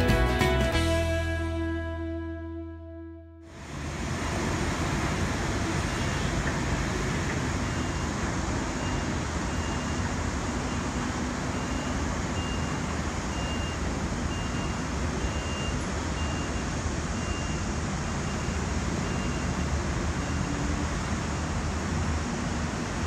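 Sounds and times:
vehicle hiss and hum: 3.5s - 23.0s
faint high-pitched beeps: 11.5s - 20.6s.

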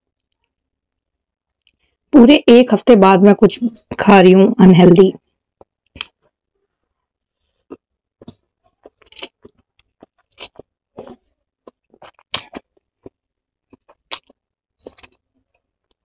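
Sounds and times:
noodles slurped and chewed: 7.6s - 15.2s
wet mouth smacks: 7.7s - 11.2s, 12.0s - 13.2s, 13.8s - 15.2s.

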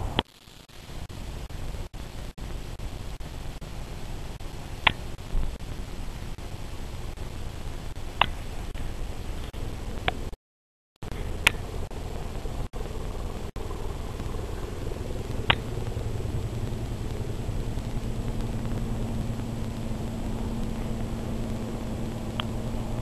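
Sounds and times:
low steady hum: 0.0s - 10.4s, 11.0s - 23.0s
sharp clicks: 4.4s - 5.6s, 7.9s - 8.8s, 11.0s - 22.8s
distant engines rumbling: 11.0s - 23.0s.

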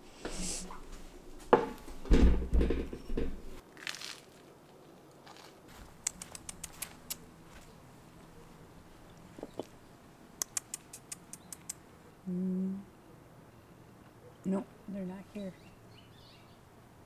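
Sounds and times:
toast crunching: 3.6s - 7.2s
sharp clicks: 5.9s - 7.3s, 10.4s - 11.8s.

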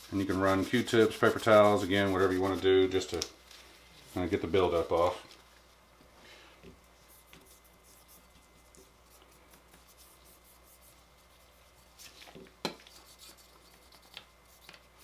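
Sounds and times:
cotton swab rubbing metal: 0.0s - 3.1s, 7.1s - 12.2s, 12.8s - 15.0s.

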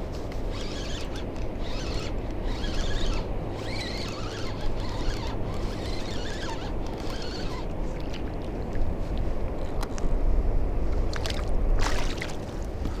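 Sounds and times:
wind: 0.0s - 13.0s
fishing reel whirring: 0.4s - 7.7s
water: 3.5s - 10.2s, 10.8s - 13.0s.

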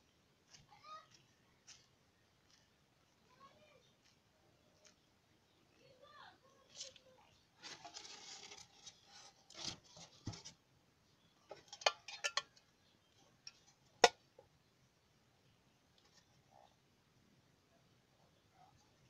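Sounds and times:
scraping and rustling: 6.6s - 10.6s.

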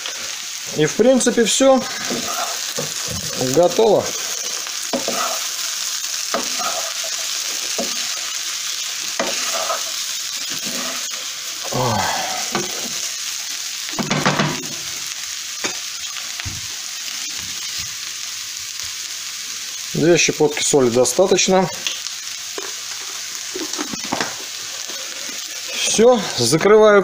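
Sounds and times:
potatoes sizzling in a pan: 0.0s - 27.0s
wooden spatula scraping a pan: 1.8s - 5.6s, 6.3s - 8.2s, 9.2s - 11.3s.

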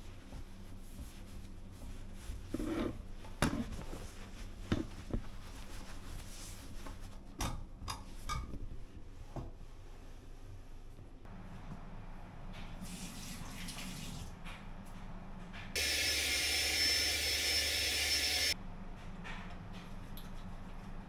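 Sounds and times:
cloth rubbing: 0.1s - 7.2s.

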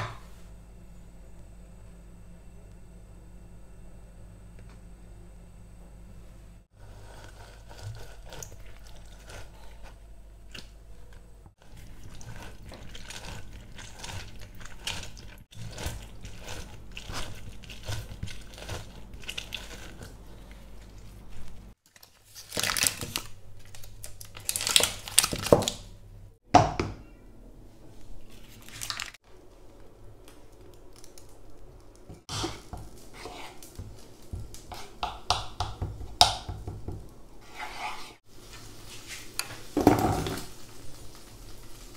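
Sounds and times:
low steady hum: 0.0s - 21.8s
orange squishing on citrus reamer: 6.8s - 21.7s.

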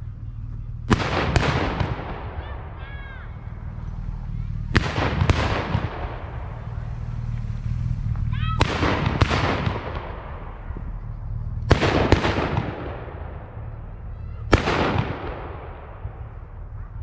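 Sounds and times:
salute gun bangs with rolling echo: 0.9s - 3.4s, 4.7s - 6.8s, 8.6s - 10.7s, 11.7s - 13.6s, 14.4s - 16.8s.

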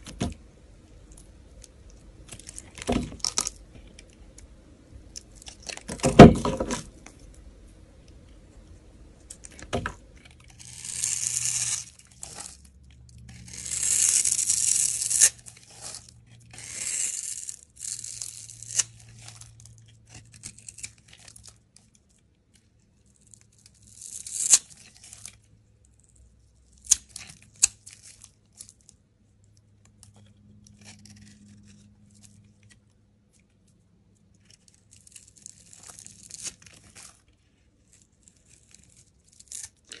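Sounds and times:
knife blade shaving soap: 10.2s - 21.9s.

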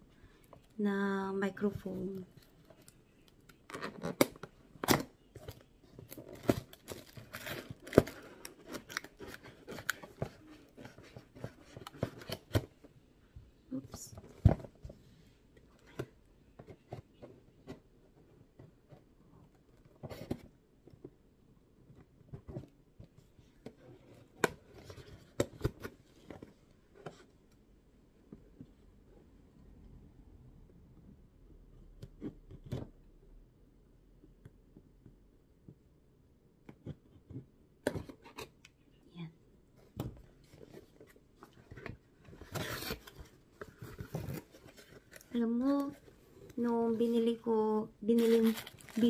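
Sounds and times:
cardboard tearing: 42.4s - 43.2s.

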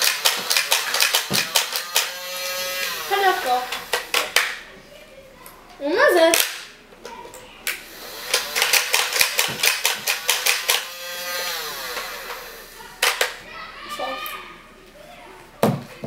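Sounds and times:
toy dart gun humming tone: 0.0s - 4.5s, 7.8s - 13.3s
toy dart gun clicking: 0.0s - 4.6s, 6.3s - 6.7s, 7.7s - 13.4s.

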